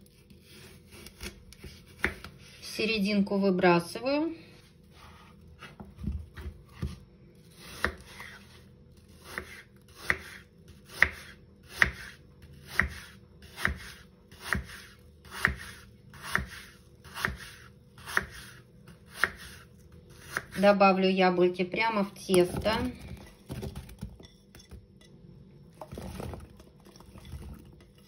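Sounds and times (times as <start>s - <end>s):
knife slicing apple on wooden board: 0.1s - 2.4s, 5.0s - 20.6s.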